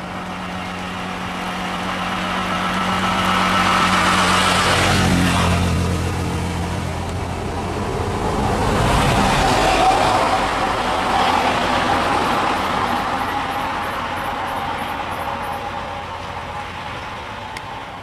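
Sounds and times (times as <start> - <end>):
vehicle engine and road noise: 0.0 - 18.0.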